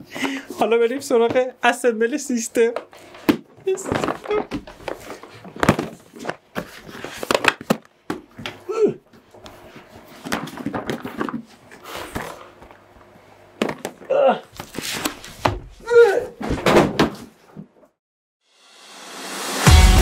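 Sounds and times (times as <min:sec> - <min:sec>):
cardboard boxes scraping and rustling: 0:03.0 - 0:07.7.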